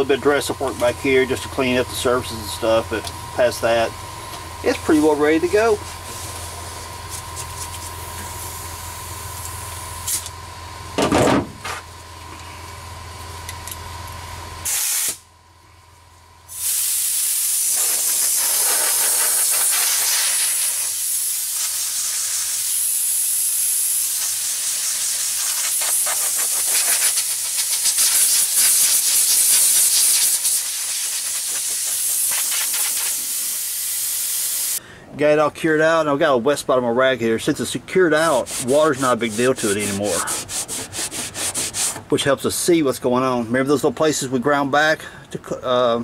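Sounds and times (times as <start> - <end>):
hose nozzle spraying water: 16.6 - 34.8.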